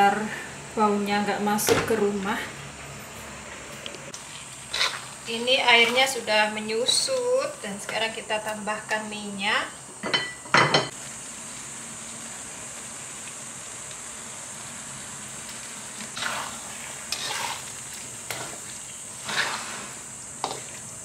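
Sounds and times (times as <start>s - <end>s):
paste sizzling in a wok: 4.1s - 10.1s, 10.9s - 21.0s
spatula scraping a wok: 4.6s - 7.0s, 15.6s - 21.0s.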